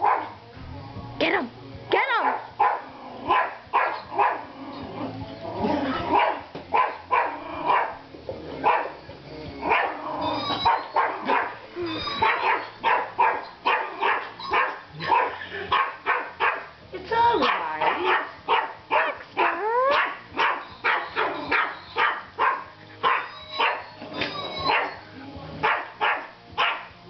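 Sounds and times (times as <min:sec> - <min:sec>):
small dog barking: 0:00.0 - 0:00.3, 0:02.2 - 0:04.4, 0:06.1 - 0:08.0, 0:08.6 - 0:09.0, 0:09.7 - 0:10.0, 0:10.6 - 0:11.6, 0:12.2 - 0:16.7, 0:17.4 - 0:23.8, 0:24.6 - 0:25.0, 0:25.6 - 0:26.9.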